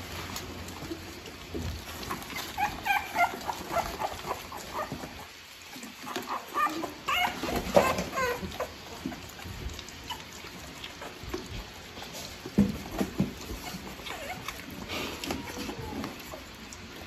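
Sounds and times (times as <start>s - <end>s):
puppies whimpering: 2.0s - 12.1s, 13.4s - 17.0s.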